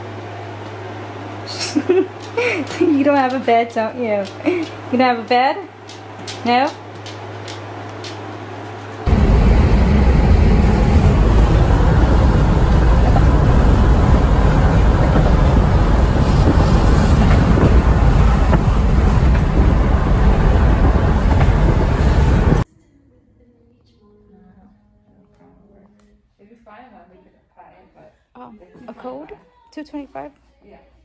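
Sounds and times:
wind and road noise: 0:09.1 - 0:22.6
wind buffeting microphone: 0:09.1 - 0:22.6.

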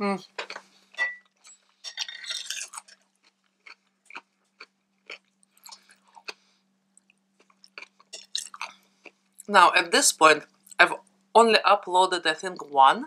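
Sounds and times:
person chewing food: 0:00.3 - 0:09.5
knife and fork on glass plate: 0:01.0 - 0:02.9.

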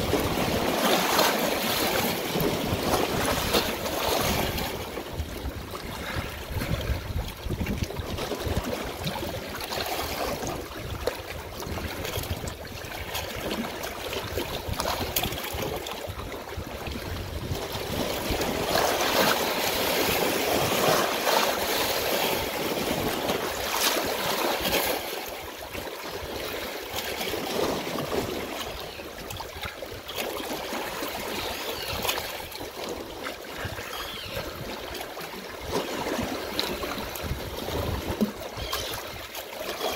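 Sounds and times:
running water rushing: 0:11.3 - 0:39.9.

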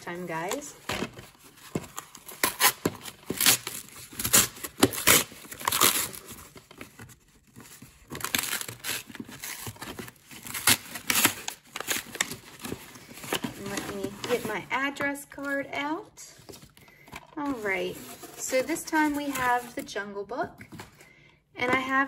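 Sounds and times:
cardboard and paper ripping: 0:00.0 - 0:14.8, 0:17.4 - 0:19.9.

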